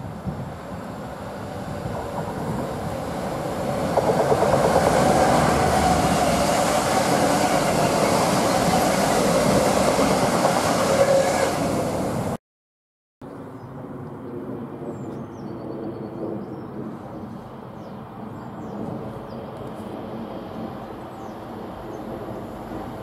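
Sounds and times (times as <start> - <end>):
diesel locomotives passing: 0.0 - 12.4, 16.8 - 23.0
wheels clicking over rail joints: 1.6 - 6.4.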